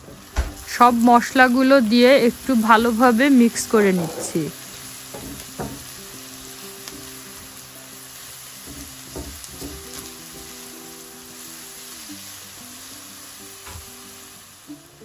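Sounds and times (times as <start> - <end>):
onions sizzling in hot oil: 0.0 - 15.0
spatula scraping pan: 3.5 - 5.4.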